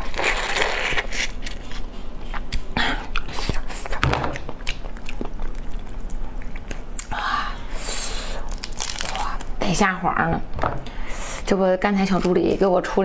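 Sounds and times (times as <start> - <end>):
shell cracking and peeling: 8.5 - 9.5.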